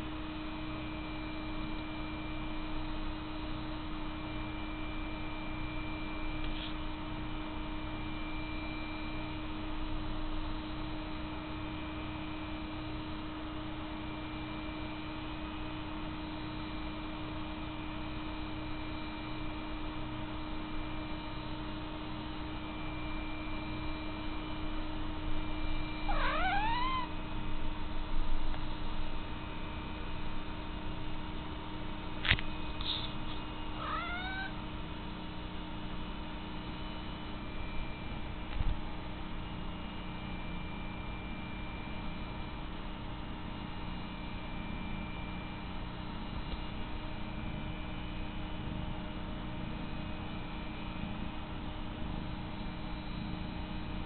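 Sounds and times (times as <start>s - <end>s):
steady low hum: 19.4s - 40.9s
cat meowing: 26.1s - 27.1s, 33.8s - 34.6s.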